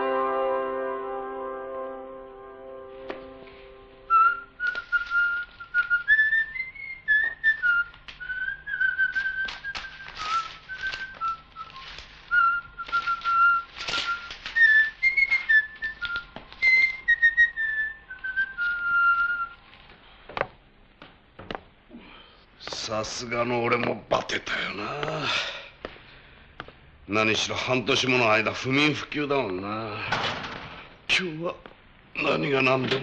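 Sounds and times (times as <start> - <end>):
person whistling a tune: 4.1 - 19.6
papers rustling: 4.6 - 21.8.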